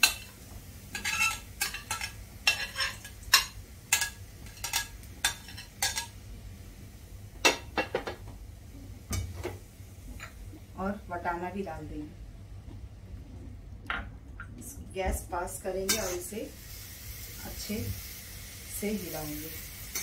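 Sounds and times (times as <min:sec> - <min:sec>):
metal spatula clinking on pan: 0:01.0 - 0:06.1.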